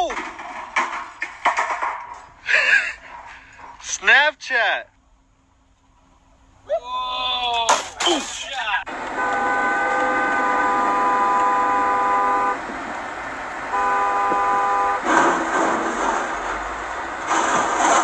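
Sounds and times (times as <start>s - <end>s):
metal crashing and clattering: 0.0s - 3.9s, 15.0s - 18.0s
two-tone car horn honking: 8.9s - 12.9s, 13.6s - 15.5s.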